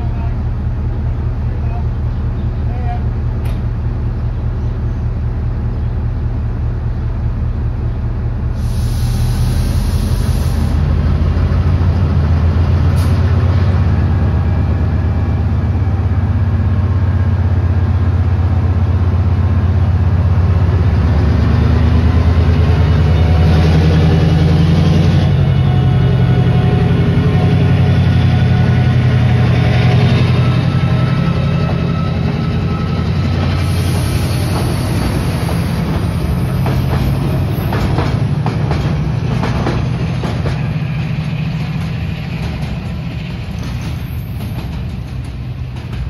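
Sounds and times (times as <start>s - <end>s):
diesel locomotive engine running: 0.0s - 46.0s
brief hiss: 8.6s - 10.8s.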